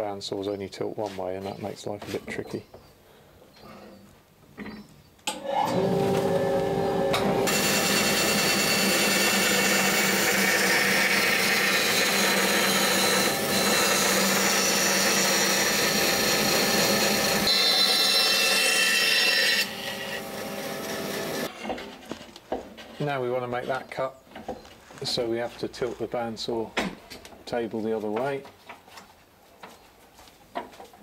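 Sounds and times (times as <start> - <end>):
bandsaw cutting wood: 5.3 - 21.5.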